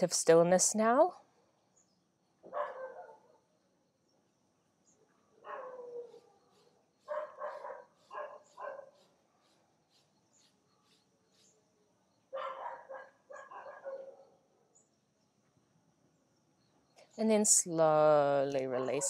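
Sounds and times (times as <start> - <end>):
dog barking: 2.5 - 3.5, 5.4 - 9.0, 12.3 - 14.5.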